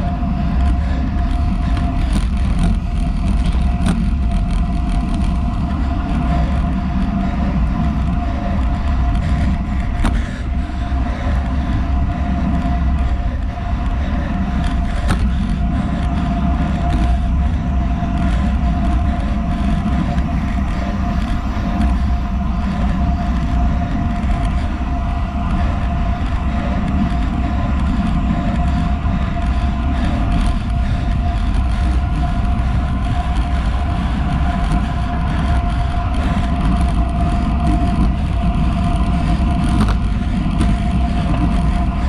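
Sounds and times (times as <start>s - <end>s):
bike tyres rolling on asphalt: 0.0s - 42.0s
faint constant hum: 0.0s - 42.0s
wind buffeting microphone: 0.0s - 42.0s.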